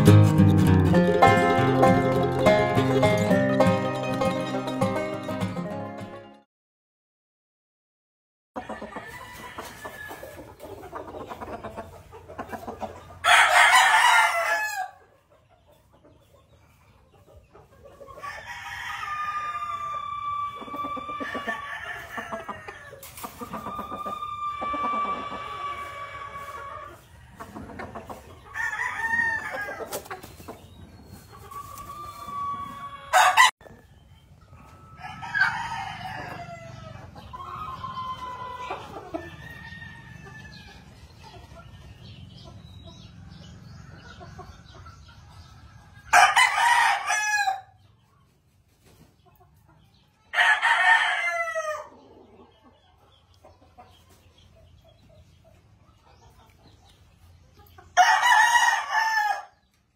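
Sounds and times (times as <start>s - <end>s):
roosters crowing: 8.6s - 11.9s, 12.8s - 15.2s, 18.1s - 30.3s, 31.1s - 33.8s, 34.4s - 41.3s, 45.8s - 47.9s, 50.3s - 52.5s, 57.9s - 59.7s.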